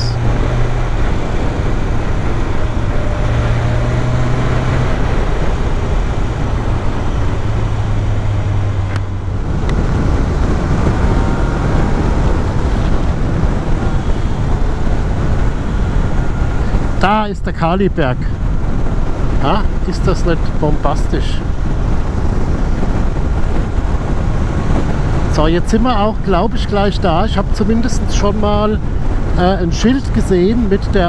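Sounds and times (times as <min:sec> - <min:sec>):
motorcycle engine running: 0:00.0 - 0:17.2
wind rush on microphone: 0:00.0 - 0:31.0.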